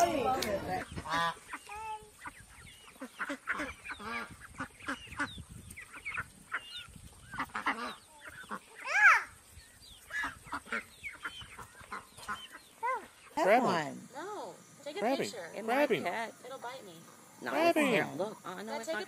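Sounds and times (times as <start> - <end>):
ducks quacking: 0.0 - 14.2.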